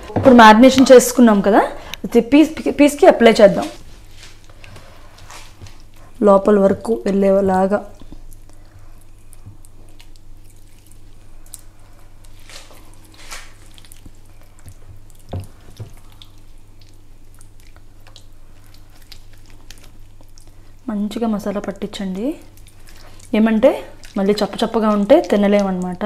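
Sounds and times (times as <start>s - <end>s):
low steady hum: 0.0s - 26.0s
hands squelching marinade into meat: 8.1s - 26.0s.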